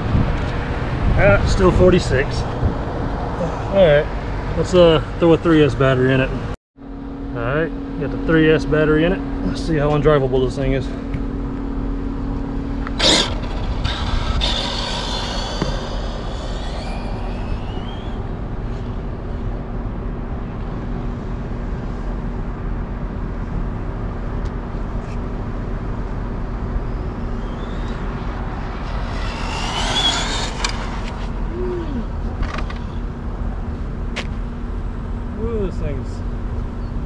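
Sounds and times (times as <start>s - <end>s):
outdoor background noise: 0.0s - 37.0s
electric motor whining: 12.6s - 19.0s, 27.1s - 32.8s.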